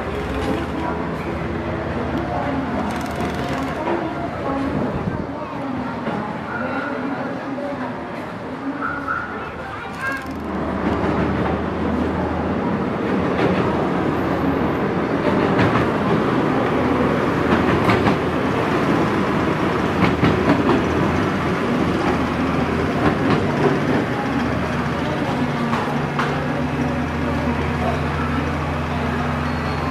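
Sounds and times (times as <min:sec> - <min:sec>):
rumble of heavy rail wagons: 0:00.0 - 0:29.9.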